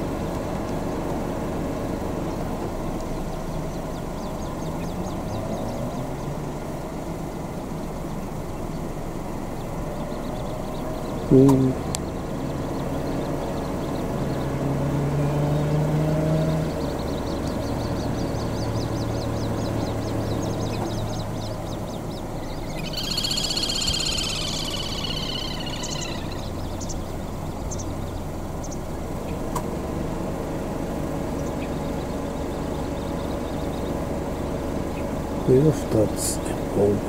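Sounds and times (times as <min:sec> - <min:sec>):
low engine hum: 0:00.0 - 0:37.0
bird high rapid trill: 0:16.8 - 0:29.0.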